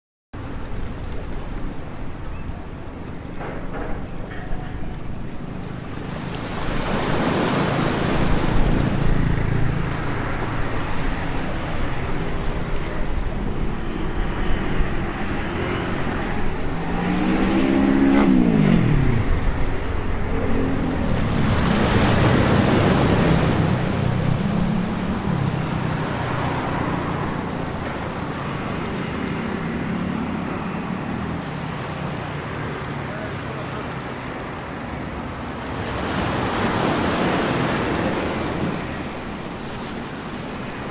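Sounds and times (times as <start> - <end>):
street traffic: 0.4 - 40.9
waves washing over rocks: 4.0 - 40.9
vehicle passing by: 5.9 - 33.8.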